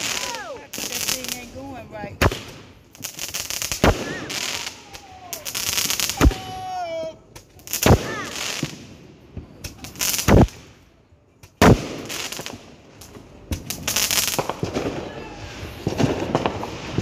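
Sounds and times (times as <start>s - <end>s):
fireworks banging and crackling: 0.0s - 17.0s
firework whistle: 3.8s - 6.7s.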